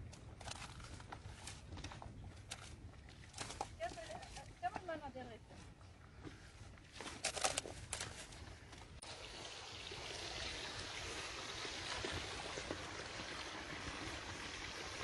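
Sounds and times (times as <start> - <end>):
stream running over rocks: 9.0 - 15.0.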